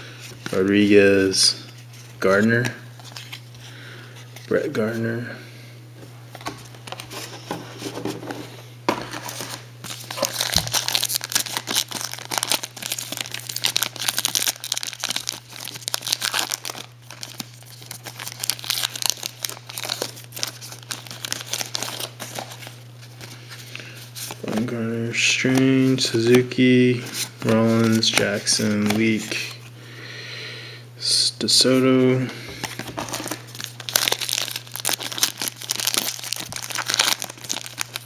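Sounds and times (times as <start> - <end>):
foil wrapper crinkling and tearing: 9.3 - 24.4, 32.6 - 38.0.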